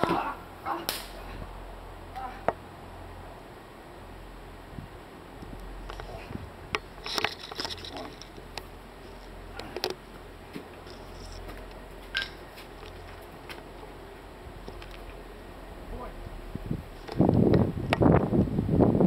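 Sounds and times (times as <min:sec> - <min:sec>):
steady low hum: 0:00.0 - 0:19.0
camera handling clicks and rustles: 0:07.0 - 0:08.6.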